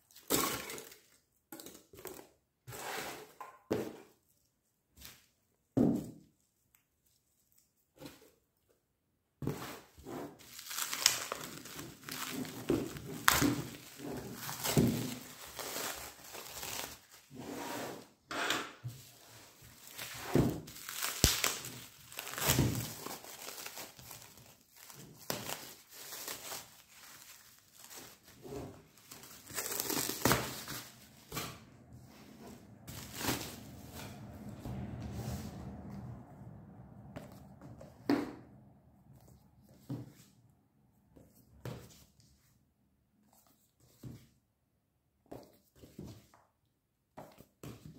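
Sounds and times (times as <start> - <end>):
plastic wrap crinkling: 10.4 - 17.3, 19.6 - 31.4, 32.9 - 33.9.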